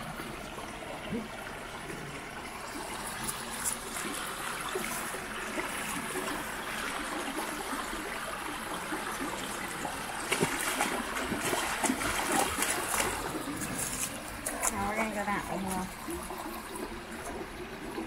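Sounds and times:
creek trickling over stones: 0:00.0 - 0:18.0
dogs splashing in water: 0:09.8 - 0:18.0.

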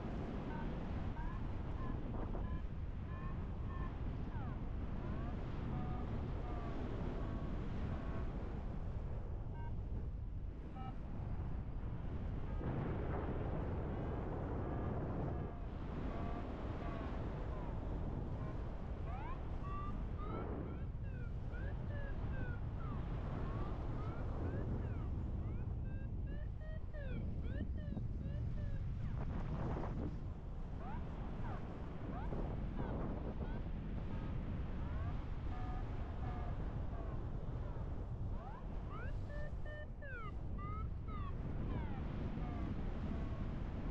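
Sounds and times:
wind buffeting microphone: 0:11.4 - 0:43.9.

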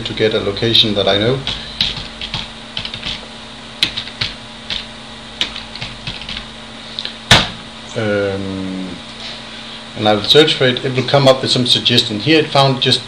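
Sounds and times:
typing on computer keyboard: 0:01.5 - 0:03.2, 0:03.8 - 0:06.5.

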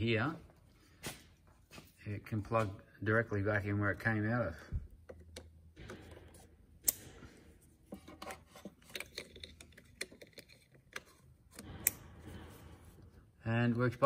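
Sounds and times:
plastic connectors clicking and rattling: 0:08.0 - 0:12.0.

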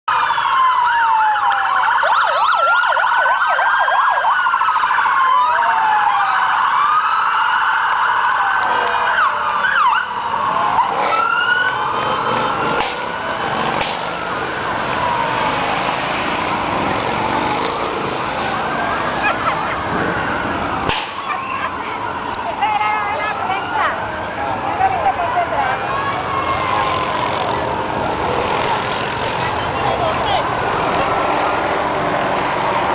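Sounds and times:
siren fast yelp: 0:00.1 - 0:12.6
police sirens wailing: 0:00.1 - 0:32.9.

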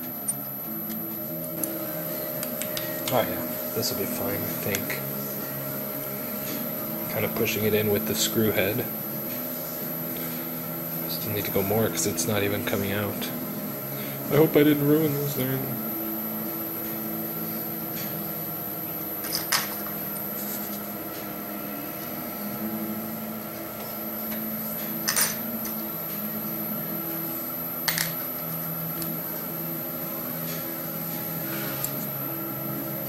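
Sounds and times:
steady background hum: 0:00.0 - 0:33.0.

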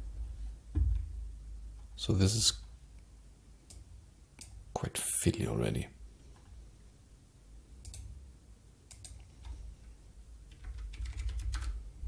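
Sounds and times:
faint low hum: 0:00.0 - 0:12.0
keyboard and mouse clicks: 0:07.8 - 0:08.1, 0:08.9 - 0:09.6.

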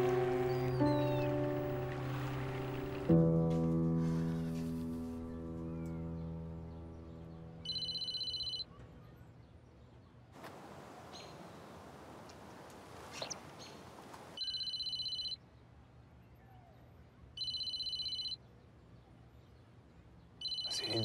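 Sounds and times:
bird chirps: 0:00.0 - 0:02.9, 0:05.4 - 0:09.2, 0:20.4 - 0:21.0
mobile phone ringing: 0:07.6 - 0:08.6, 0:14.4 - 0:15.4, 0:17.4 - 0:18.4, 0:20.4 - 0:21.0.

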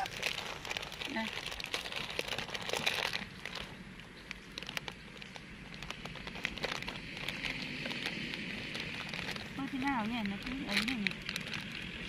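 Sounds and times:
plastic bag rustling: 0:00.0 - 0:12.0.

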